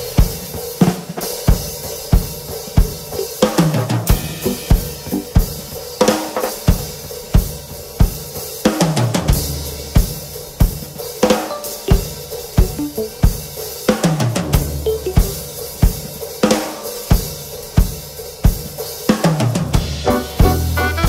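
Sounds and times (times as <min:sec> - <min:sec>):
snare and cymbals: 0:00.0 - 0:21.0
tom drum fill: 0:03.2 - 0:05.6, 0:11.5 - 0:13.4, 0:14.1 - 0:16.0.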